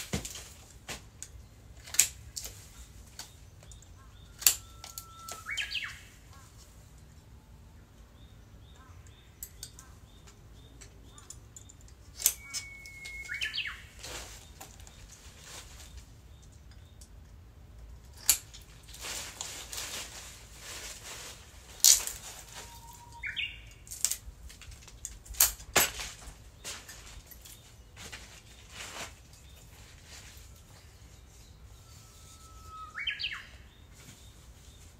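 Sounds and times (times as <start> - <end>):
rustling of branch being cut: 0.0 - 6.9, 11.9 - 17.2, 17.9 - 34.9
bird singing whistled song: 4.1 - 6.2, 12.2 - 14.0, 22.4 - 23.8, 30.8 - 34.4.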